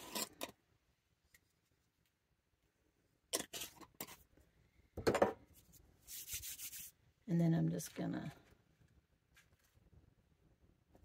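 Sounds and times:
salt shaker strokes: 6.0 - 7.0.

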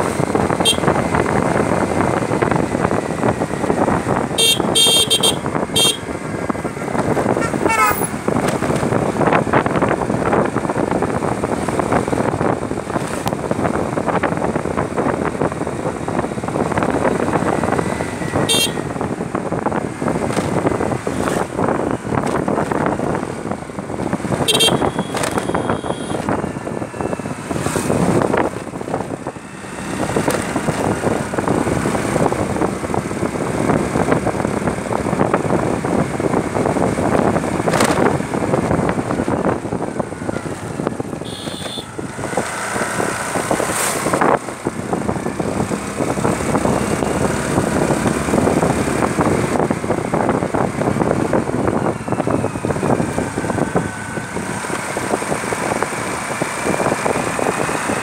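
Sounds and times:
motorbike engine running: 0.0 - 43.4
wind rushing over microphone: 0.0 - 58.0.

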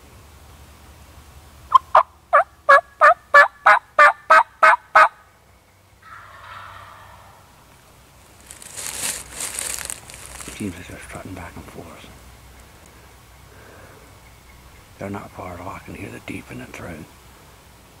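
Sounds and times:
turkey yelps: 1.7 - 5.2, 6.0 - 7.6
hissy rustling: 7.8 - 12.0.

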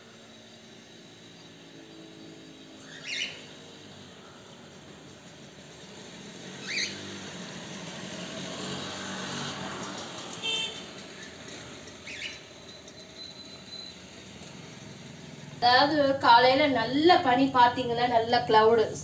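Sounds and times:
vehicle engine passing: 0.8 - 12.6
bird chirps: 2.7 - 3.7, 6.6 - 7.0, 12.0 - 14.0.

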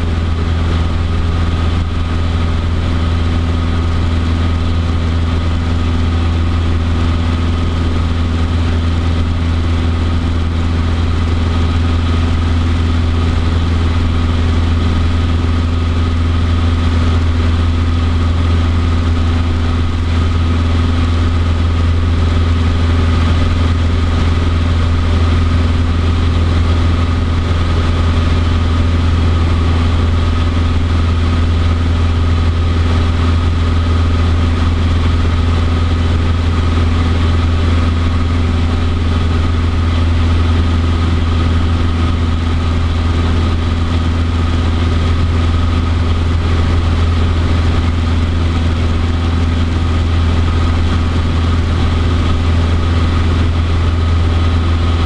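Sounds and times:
small plane engine drone in cabin: 0.0 - 55.0.

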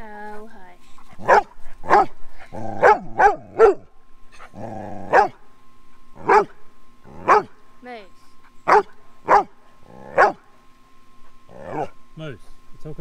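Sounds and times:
dog barking: 1.2 - 2.2, 2.8 - 3.9, 5.1 - 5.4, 6.2 - 6.6, 7.2 - 7.6, 8.7 - 10.4, 11.7 - 12.0
low drawn-out dog sounds: 11.2 - 12.0.

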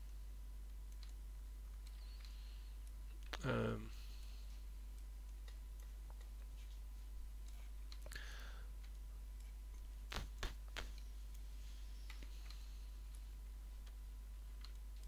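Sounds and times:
low electrical hum: 0.0 - 15.0
faint mouse clicks: 0.9 - 3.5, 7.4 - 14.0, 14.6 - 15.0.

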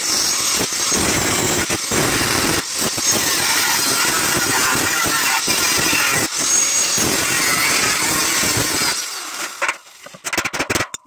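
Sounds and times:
angle grinder cutting steel: 0.0 - 10.9.

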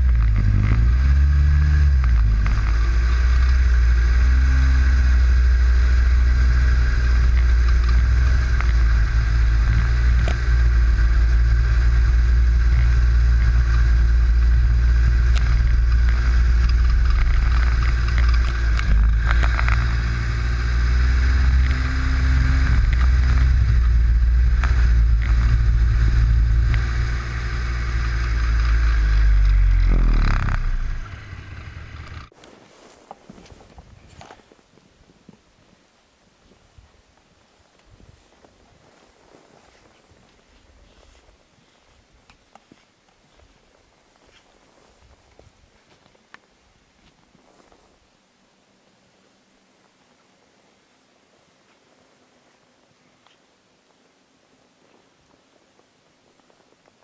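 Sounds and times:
snowmobile engine running: 0.0 - 32.3.

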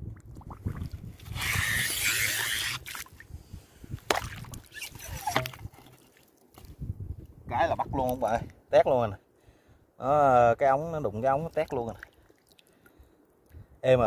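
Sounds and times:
water splashes: 0.0 - 3.2, 4.1 - 6.7, 11.2 - 12.9
suction tube sucking hiss: 1.3 - 2.9.

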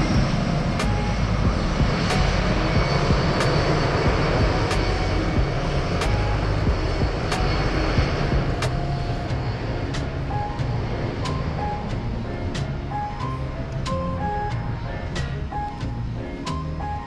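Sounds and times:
jet engines rumbling: 0.0 - 17.0.

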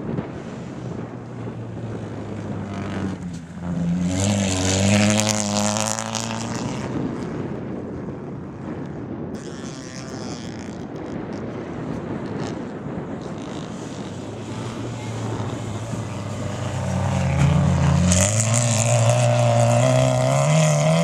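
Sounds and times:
car engine revving past: 0.3 - 7.3, 13.2 - 21.0.

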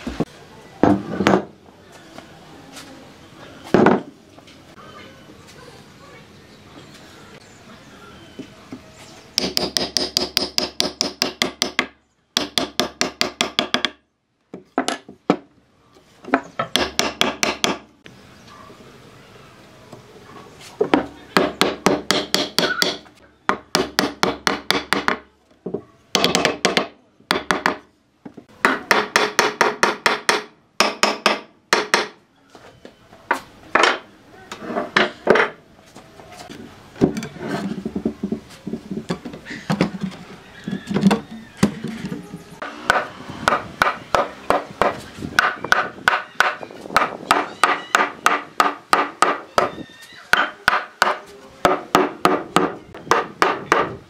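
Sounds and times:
hammer striking wood: 9.4 - 15.5, 16.3 - 17.9, 20.9 - 27.8, 28.6 - 32.2, 42.6 - 49.7, 50.3 - 54.0.

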